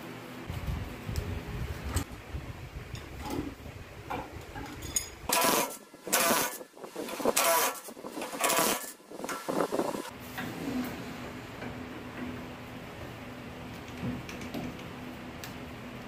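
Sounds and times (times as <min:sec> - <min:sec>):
cordless drill bursts: 0:05.3 - 0:10.1.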